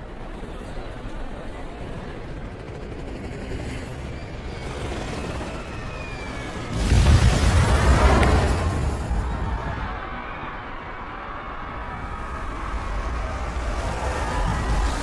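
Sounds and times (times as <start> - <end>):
helicopter whine dropping in pitch: 0.5 - 10.0
loud explosion and rumble: 6.7 - 9.9.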